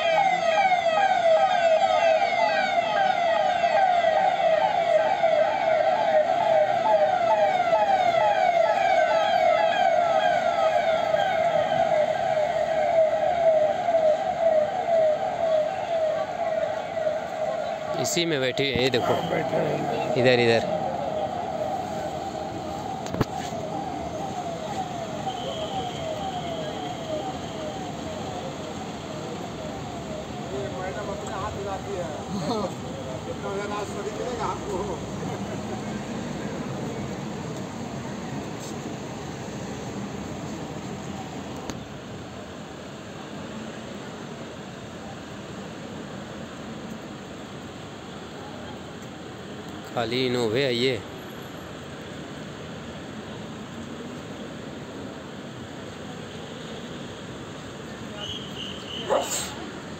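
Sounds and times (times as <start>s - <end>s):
electronic police siren: 0.0s - 32.1s
convoy vehicles noise: 0.0s - 59.9s.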